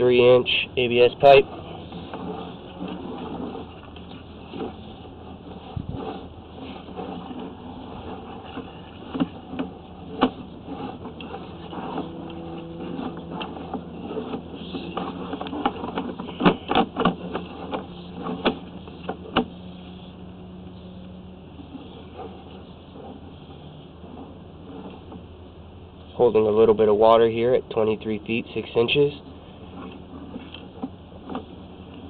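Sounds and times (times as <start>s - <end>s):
steady low hum: 0.0s - 32.0s
cable clicks and knocks: 6.8s - 19.5s.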